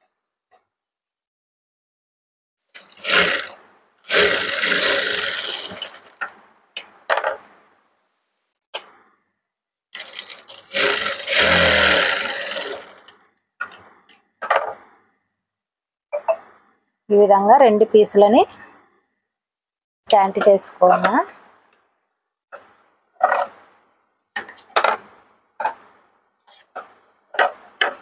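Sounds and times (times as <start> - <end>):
sewing machine stitching: 2.7 - 6.4, 10.0 - 13.8, 23.2 - 23.6.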